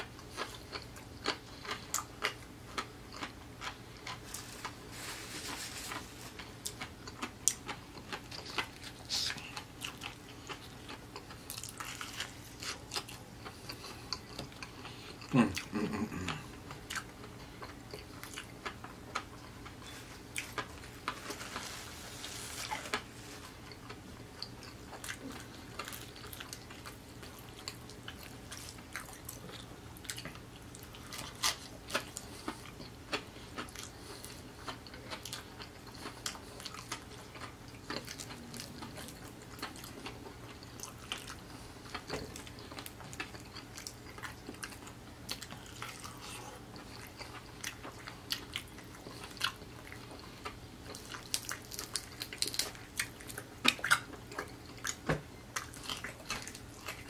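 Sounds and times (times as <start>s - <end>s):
chewing and lip-smacking: 0.0s - 4.9s, 5.9s - 21.4s, 22.7s - 57.0s
food crunching: 0.0s - 57.0s
low vocal sound: 15.3s - 16.6s.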